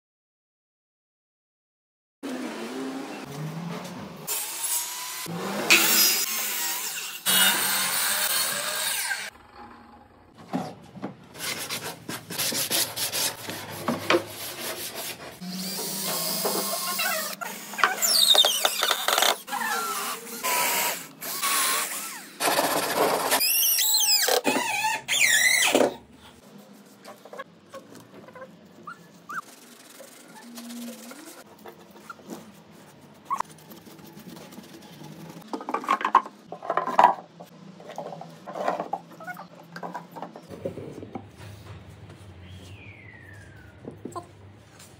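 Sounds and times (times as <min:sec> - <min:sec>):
squeaks and rubbing: 0:16.2 - 0:20.1, 0:22.5 - 0:26.0, 0:26.8 - 0:35.5.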